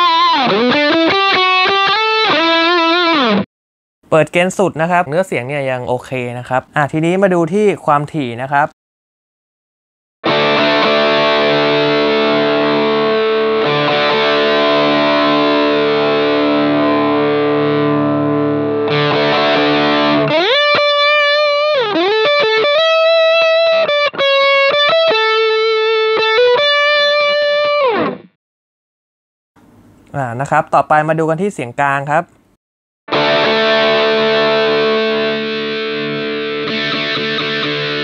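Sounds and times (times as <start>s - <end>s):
distorted electric guitar: 0.0s - 3.4s, 10.2s - 28.4s, 33.1s - 38.0s.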